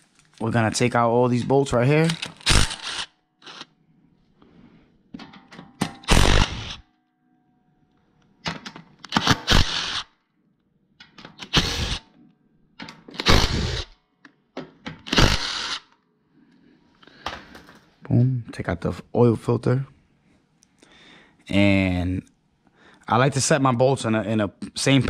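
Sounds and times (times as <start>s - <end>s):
cordless driver spinning bolts: 2.1s - 3.7s, 9.1s - 10.0s, 11.4s - 12.0s, 13.2s - 13.9s, 15.0s - 15.8s.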